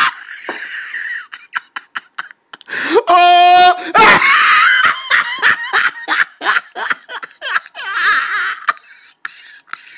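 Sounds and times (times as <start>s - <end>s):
person laughing: 3.8s - 9.8s.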